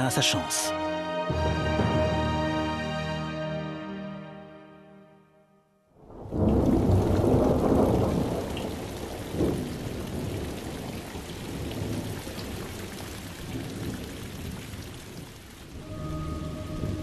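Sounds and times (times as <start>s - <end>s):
rain on wet ground: 6.0s - 17.0s
thunder rumble: 6.0s - 17.0s.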